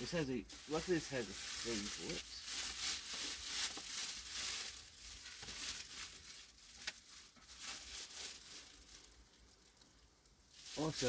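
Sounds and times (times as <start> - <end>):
plastic and paper packaging rustling: 0.0 - 11.0.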